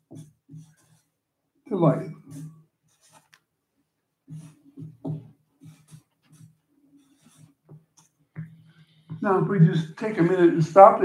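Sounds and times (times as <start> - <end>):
marker writing on paper: 0.0 - 1.2, 1.8 - 3.5, 4.2 - 9.2.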